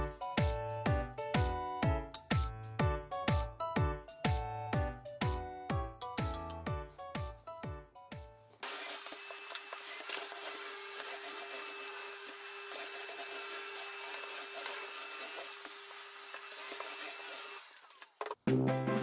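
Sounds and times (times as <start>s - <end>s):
vacuum cleaner running: 8.6s - 18.1s.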